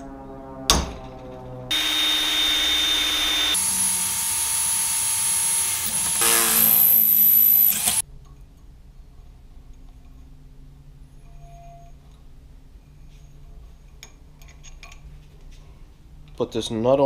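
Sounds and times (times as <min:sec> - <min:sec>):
cordless drill boring through metal: 0:01.7 - 0:08.0.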